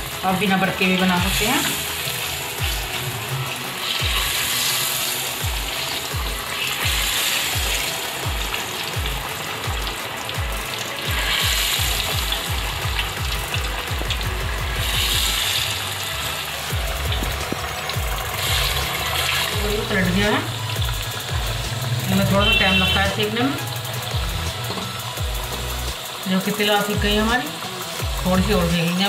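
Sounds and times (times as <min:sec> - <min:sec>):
oil sizzling: 0:00.0 - 0:29.0.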